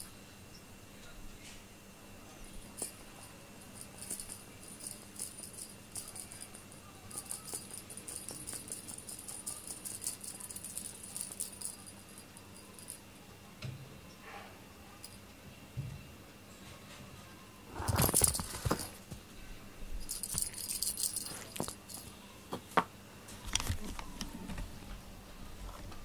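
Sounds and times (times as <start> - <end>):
small bell jingling: 2.5 - 13.1, 17.8 - 19.0, 20.0 - 22.1.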